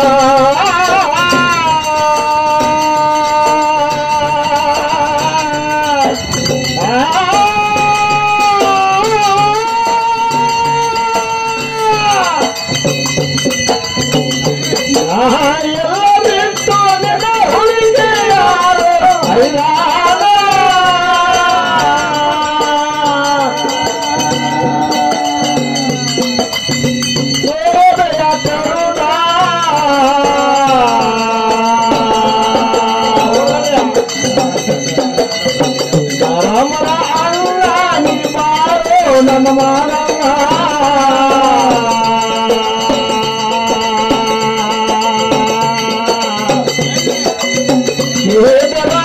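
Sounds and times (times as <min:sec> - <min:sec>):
person singing long high notes: 0:00.0 - 0:12.6, 0:15.0 - 0:26.6
hand drum beat: 0:00.0 - 0:49.0
jingling percussion: 0:00.0 - 0:49.0
man singing: 0:00.0 - 0:49.0.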